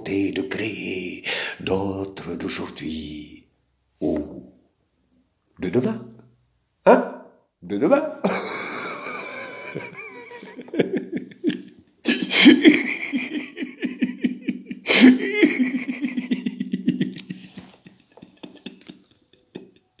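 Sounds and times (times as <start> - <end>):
man laughing theatrically: 8.2 - 20.0.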